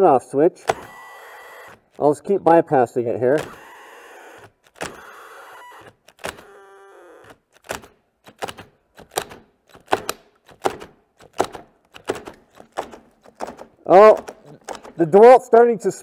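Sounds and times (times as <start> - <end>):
cordless drills running in bursts: 0.6 - 2.0, 3.4 - 7.4
sharp clicks and knocks: 3.4 - 6.6, 7.2 - 15.1.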